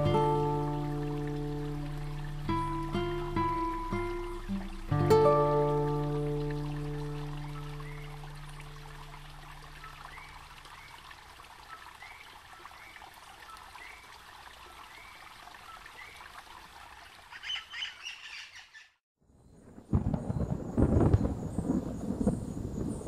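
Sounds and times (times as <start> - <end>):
faint trickling hiss: 0.0 - 12.6
thunder rumble: 19.6 - 23.0.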